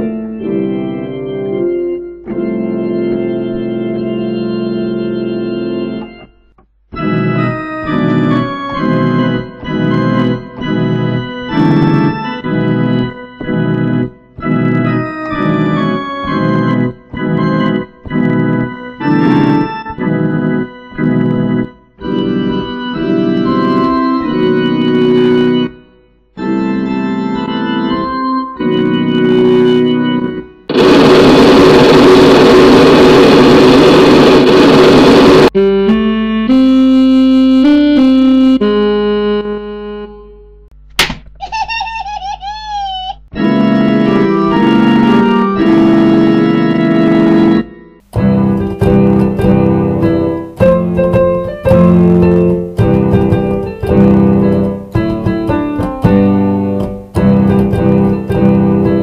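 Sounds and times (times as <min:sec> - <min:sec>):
organ-like keyboard chords: 0:00.0 - 0:40.9, 0:43.3 - 0:59.0
loud noisy wash: 0:30.7 - 0:35.5.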